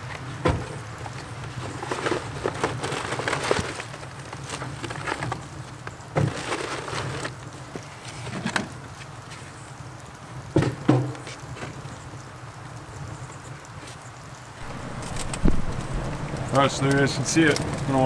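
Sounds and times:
cardboard and paper rustling: 0.0s - 9.6s, 14.6s - 18.0s.

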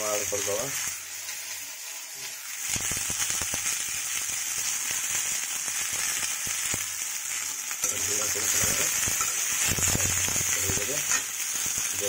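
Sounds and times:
vegetables sizzling in hot oil: 0.0s - 12.0s
metal spatula stirring: 10.9s - 11.3s.

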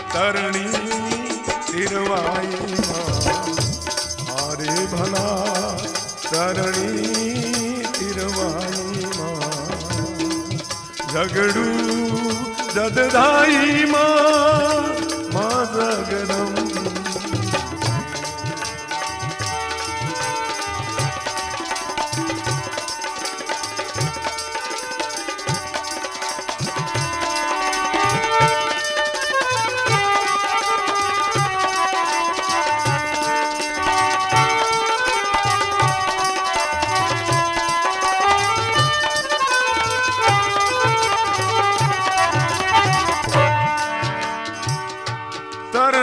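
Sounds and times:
wavering melody: 0.0s - 22.7s
hand drum rhythm: 0.0s - 46.0s
held melody notes: 0.0s - 46.0s
steady percussion: 0.0s - 46.0s.

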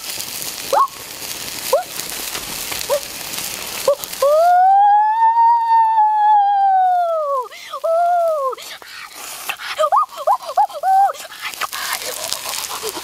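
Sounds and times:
steady hiss: 0.0s - 13.0s
boy's long ooh call: 3.9s - 8.6s
boy humming mm sounds: 6.4s - 8.8s.

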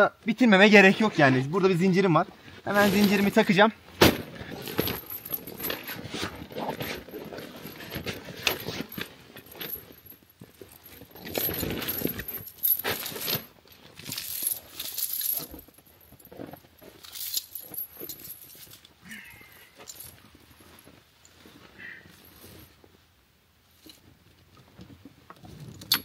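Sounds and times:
snow chains clinking: 2.7s - 3.6s, 4.4s - 22.8s.

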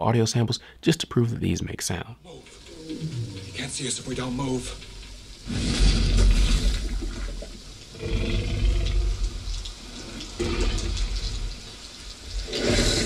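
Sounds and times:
heavy rain: 2.3s - 13.0s
deep rumbling creature breaths: 12.4s - 13.0s.

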